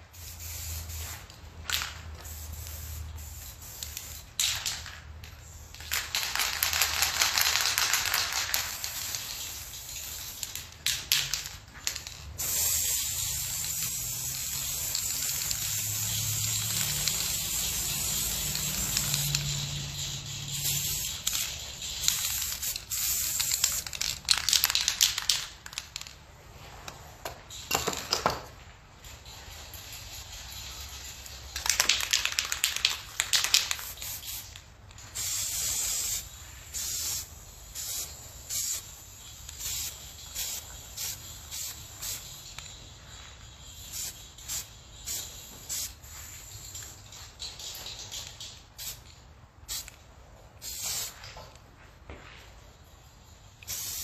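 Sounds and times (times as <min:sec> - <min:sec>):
aerosol spray can hissing: 0:00.1 - 0:01.4, 0:02.2 - 0:04.4, 0:05.9 - 0:25.5, 0:35.2 - 0:42.8, 0:43.8 - 0:46.8, 0:49.7 - 0:50.0, 0:50.6 - 0:51.2, 0:53.6 - 0:54.0.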